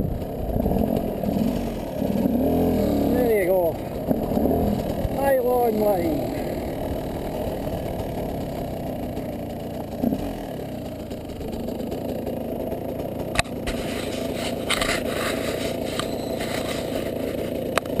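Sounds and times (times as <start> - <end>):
motorcycle engine idling: 0.0 - 18.0
camera handling scraping: 13.4 - 17.6.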